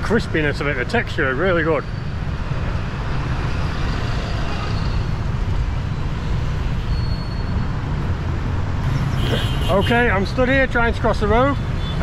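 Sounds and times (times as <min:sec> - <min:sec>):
city street traffic: 0:00.0 - 0:12.0.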